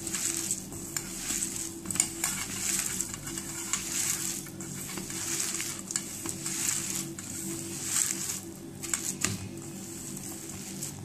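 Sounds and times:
hand squishing dough in bowl: 0.0s - 11.0s.

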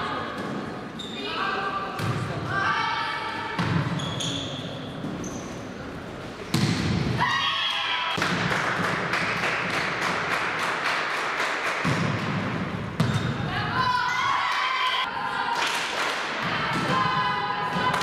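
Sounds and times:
quick regular claps: 8.2s - 12.0s.

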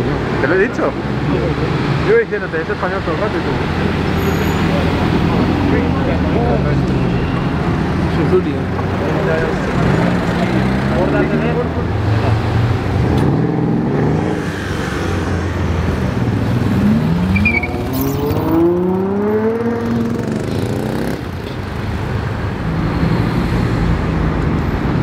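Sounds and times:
cars in slow traffic: 0.0s - 25.0s
car engine accelerating: 9.0s - 21.3s.

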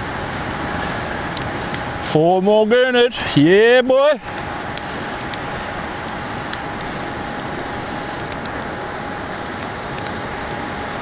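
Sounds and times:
faint steady hum: 0.0s - 11.0s
wind: 0.0s - 11.0s.

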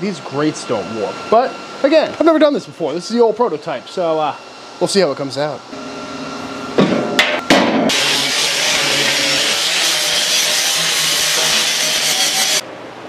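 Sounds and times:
angle grinder on steel: 7.9s - 12.6s.

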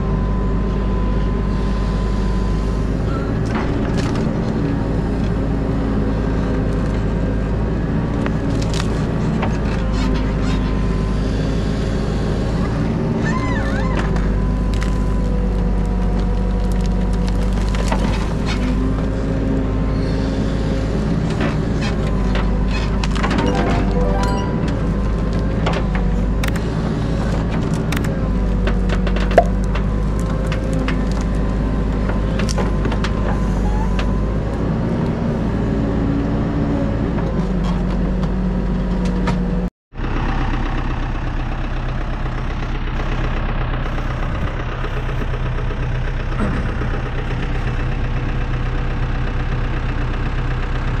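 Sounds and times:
diesel engine running: 0.0s - 13.2s, 37.8s - 51.0s.

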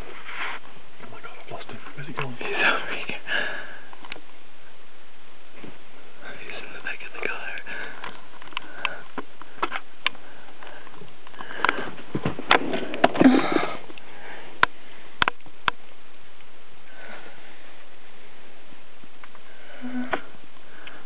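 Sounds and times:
person sniffing and gasping: 13.1s - 13.9s.

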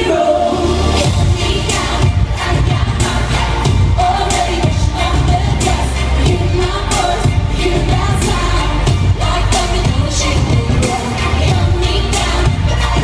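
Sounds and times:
live pop music with vocals: 0.0s - 13.0s.

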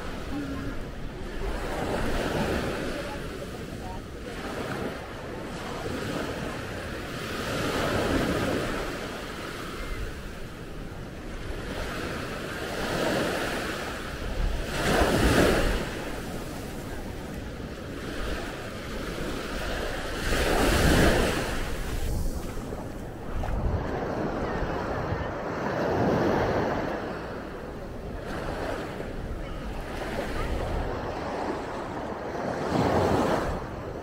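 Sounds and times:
ocean surf breaking: 11.3s - 34.0s
wind rumble on microphone: 14.1s - 27.0s.

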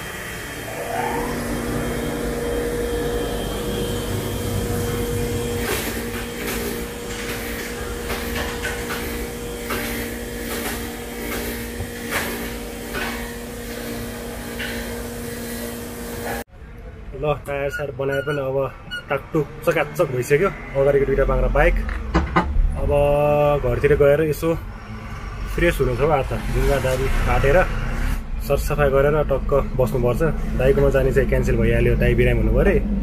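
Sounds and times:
air compressor motor humming: 0.0s - 16.5s.

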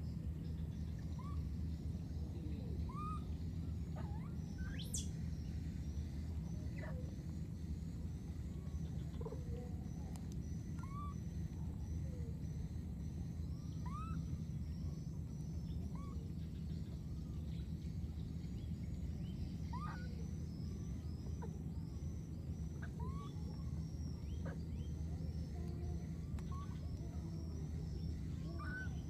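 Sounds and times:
steady low rumble: 0.0s - 29.0s
bird chirping: 0.4s - 29.0s.

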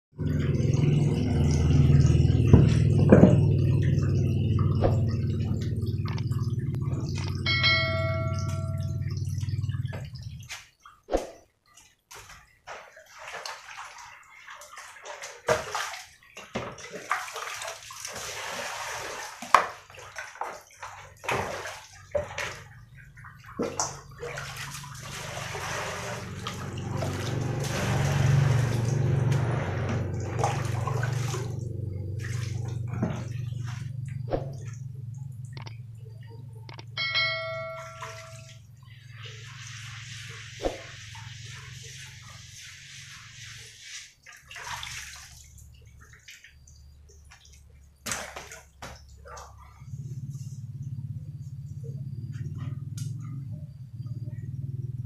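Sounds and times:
water splashing and pouring: 0.2s - 35.8s, 36.7s - 50.1s
short chime: 7.5s - 9.2s, 37.0s - 38.6s.

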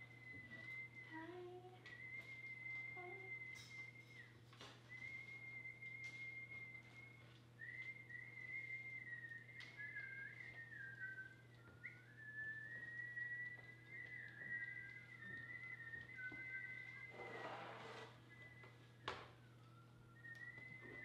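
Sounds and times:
faint high whistling: 0.0s - 21.0s.

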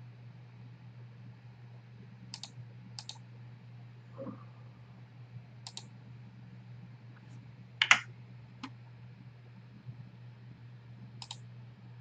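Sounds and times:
low steady hum: 0.0s - 12.0s
computer mouse double clicks: 7.8s - 8.0s, 11.2s - 11.4s.

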